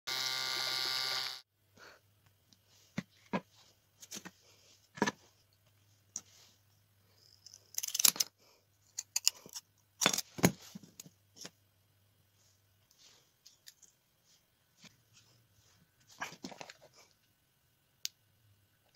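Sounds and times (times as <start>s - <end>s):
steady pitched buzz: 0.1s - 1.4s.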